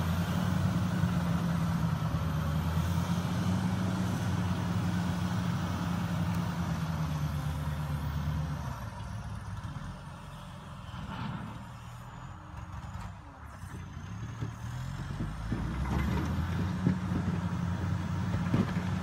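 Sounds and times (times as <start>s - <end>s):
diesel engine running: 0.0s - 19.0s.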